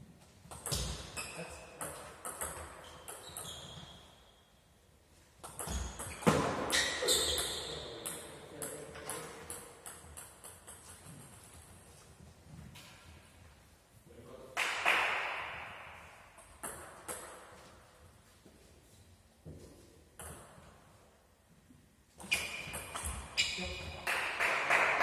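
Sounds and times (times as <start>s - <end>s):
table tennis ball hits: 0.5s - 3.4s, 14.6s - 17.5s.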